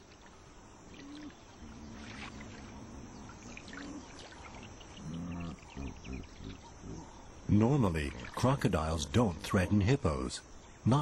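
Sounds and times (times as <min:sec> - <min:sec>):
water lapping: 0:00.0 - 0:09.9
hippopotamus grunting: 0:01.0 - 0:09.9.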